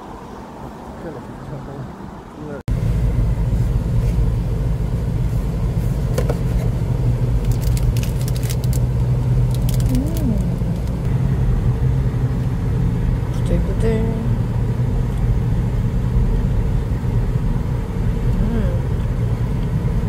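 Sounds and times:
car cabin engine rumble: 0:01.0 - 0:20.0
plastic wrapper crinkling: 0:07.4 - 0:11.0.

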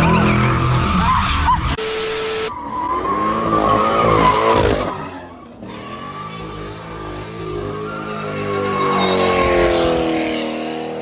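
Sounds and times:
car tyres squealing: 0:00.0 - 0:11.0
car engine revving: 0:01.9 - 0:11.0.

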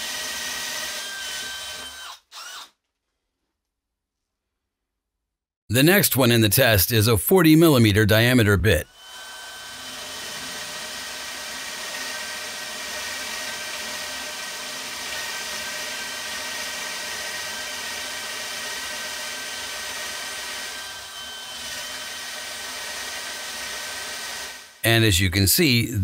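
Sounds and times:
cordless drill boring into wood: 0:00.0 - 0:02.8, 0:08.9 - 0:24.8.

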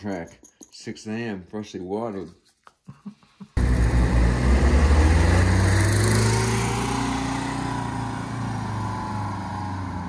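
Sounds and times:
bus engine pulling away: 0:03.6 - 0:10.0.

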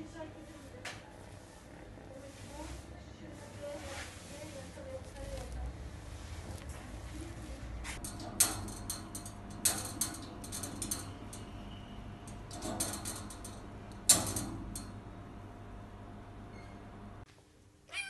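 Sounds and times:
metal cage bars rattling and clicking: 0:08.0 - 0:15.5.

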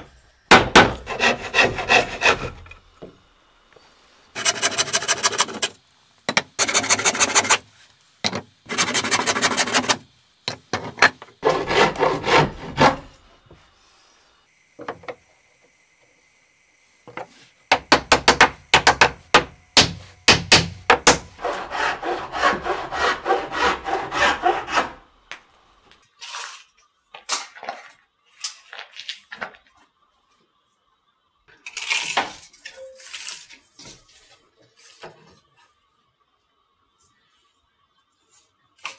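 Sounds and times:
rasping through wood: 0:00.8 - 0:02.6, 0:04.4 - 0:05.8, 0:11.4 - 0:13.1, 0:21.1 - 0:25.0
scrapes on wood: 0:00.9 - 0:02.6, 0:04.4 - 0:05.7, 0:10.8 - 0:13.1.

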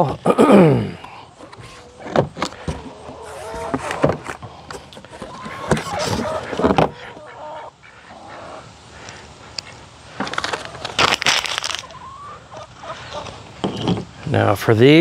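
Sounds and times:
poultry calling: 0:01.0 - 0:09.9, 0:11.8 - 0:13.5
packing paper rustling: 0:10.2 - 0:11.9.

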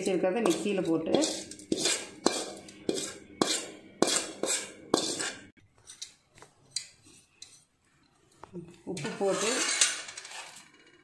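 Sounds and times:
spoon scraping steel pan: 0:00.0 - 0:07.8, 0:08.9 - 0:10.8.

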